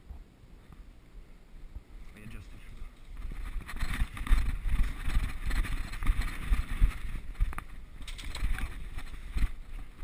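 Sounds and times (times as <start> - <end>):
wind on microphone: 1.6 - 10.0
running footsteps on dirt: 2.9 - 10.0.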